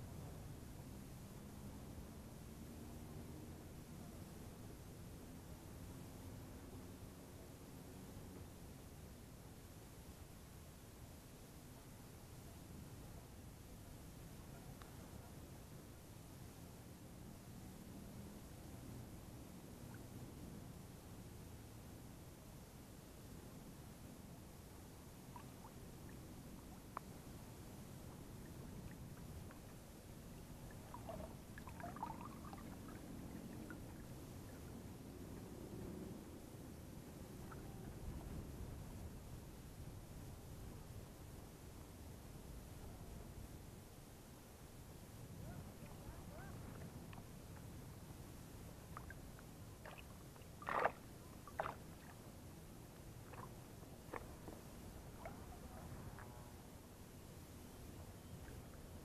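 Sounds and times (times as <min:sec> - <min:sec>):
water splashing and sloshing: 0:30.6 - 0:34.7, 0:49.8 - 0:52.2, 0:53.2 - 0:56.3
fish splashing at water surface: 0:49.8 - 0:51.8.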